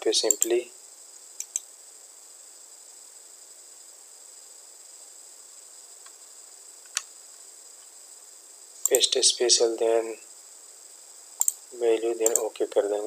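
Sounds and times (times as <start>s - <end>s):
high-pitched electronic hiss: 0.0s - 13.0s
computer mouse click: 0.3s - 0.5s, 1.4s - 1.7s, 6.8s - 7.1s, 8.8s - 9.1s, 11.4s - 11.6s, 12.2s - 12.5s.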